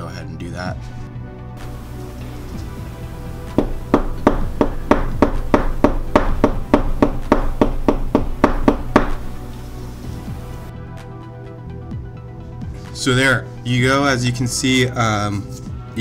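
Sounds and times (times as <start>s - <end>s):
knuckles knocking on tabletop: 3.5s - 9.2s.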